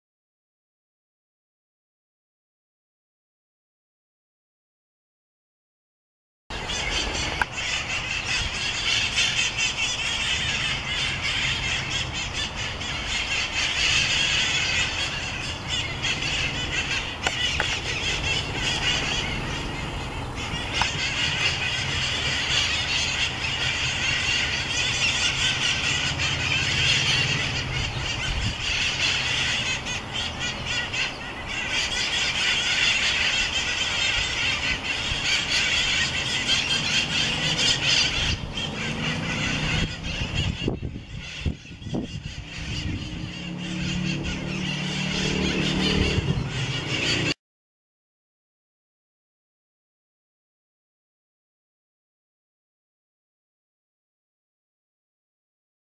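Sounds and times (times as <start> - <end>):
parrots calling: 6.5 - 47.4.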